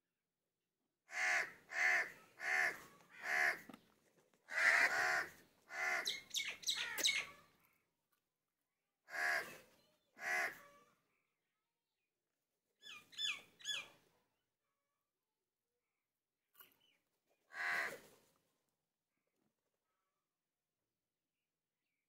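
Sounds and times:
crow cawing: 1.1 - 3.7, 4.5 - 7.2, 9.1 - 9.6, 10.2 - 10.8, 17.5 - 18.0.

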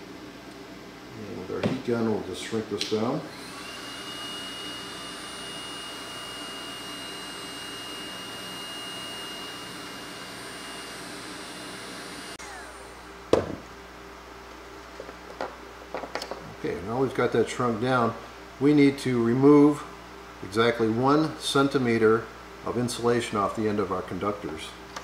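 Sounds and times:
heat gun blowing with whine: 3.3 - 13.8.

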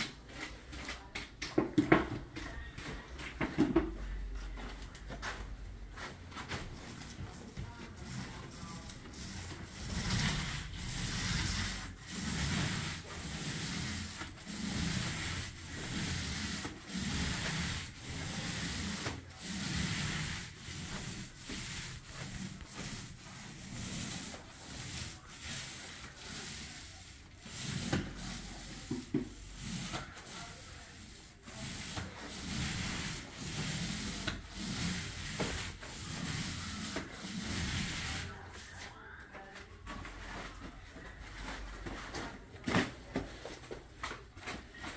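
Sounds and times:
paint roller swishing: 3.6 - 44.9.

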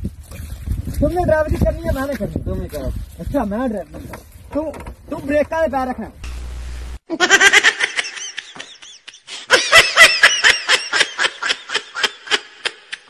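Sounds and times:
high-pitched laughter: 7.1 - 13.0.

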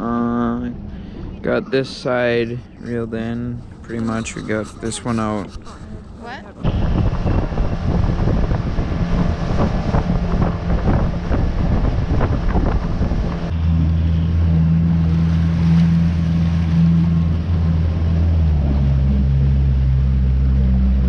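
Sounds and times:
boat motor humming: 0.0 - 21.0
wind buffeting microphone: 5.4 - 13.6.

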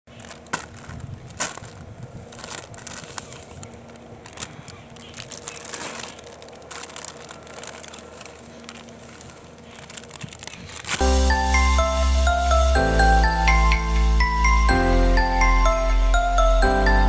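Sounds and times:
balloons clicking onto dirt: 0.1 - 11.0
plastic packet crinkling: 0.1 - 11.0.

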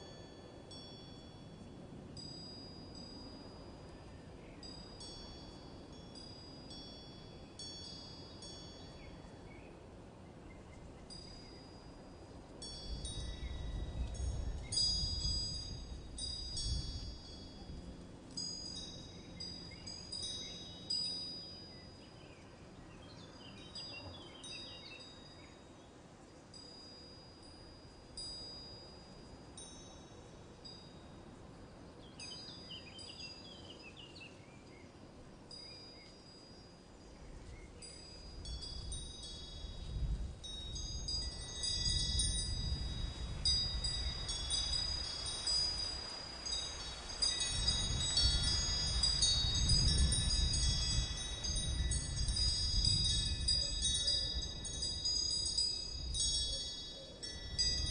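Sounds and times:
wind chimes ringing: 0.0 - 10.0, 10.7 - 57.9.

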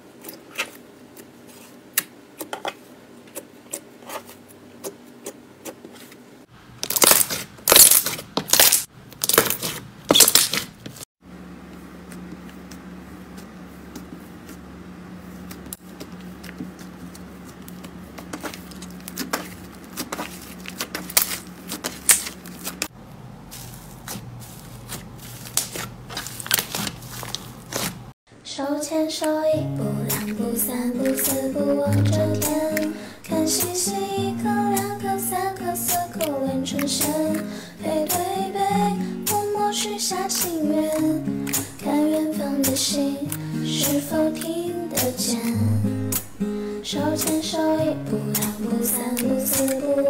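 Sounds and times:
crunchy slime crackling: 6.8 - 10.8, 15.4 - 22.9, 23.5 - 28.1
faint steady hum: 26.8 - 50.0.

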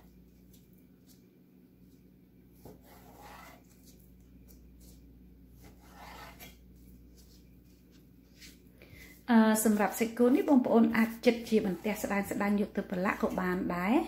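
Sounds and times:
knife slicing meat on wood: 5.6 - 6.6.

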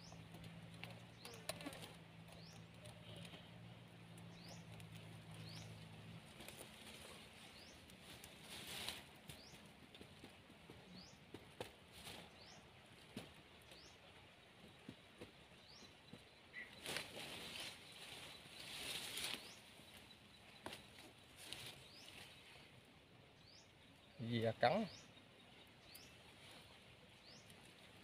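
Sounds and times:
bird chirping: 0.0 - 3.5, 4.2 - 5.9, 23.3 - 27.8
bag rustling among leaves: 6.3 - 9.5, 16.8 - 20.0.

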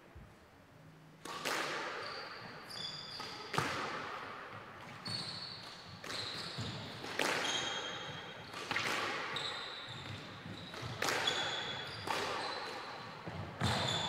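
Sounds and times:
squash ball hitting racket and walls: 1.2 - 14.0
shoes squeaking on wooden floor: 5.0 - 5.6.

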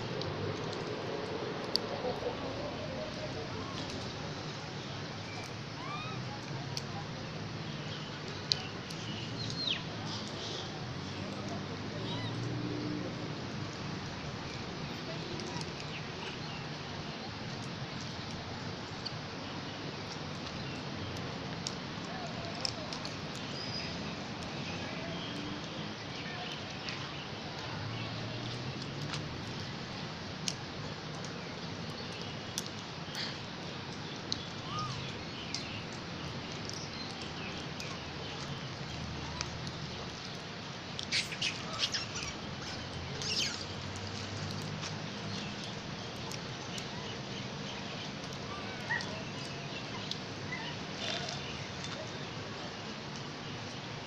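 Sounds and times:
outdoor background noise: 0.0 - 54.0
faint clicks: 20.0 - 24.5.

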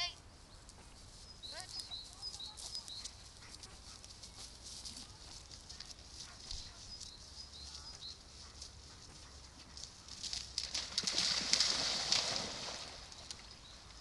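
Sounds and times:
dog splashing in water: 10.0 - 13.9.

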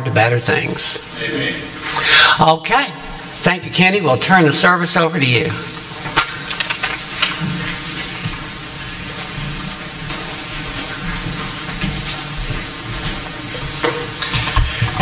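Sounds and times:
hiss of recording noise: 0.0 - 15.0.

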